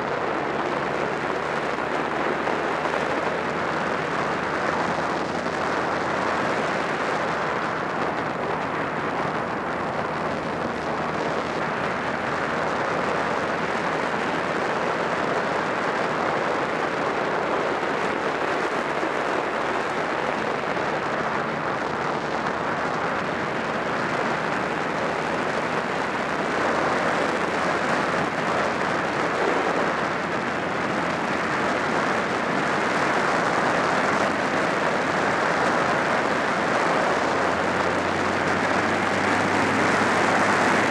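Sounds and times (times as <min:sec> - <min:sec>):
wind rush on microphone: 0:00.0 - 0:40.9.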